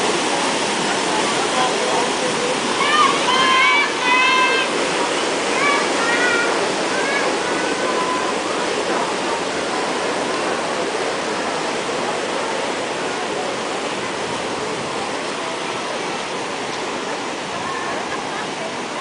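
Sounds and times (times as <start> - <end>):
paddle wheels churning water: 0.0 - 19.0.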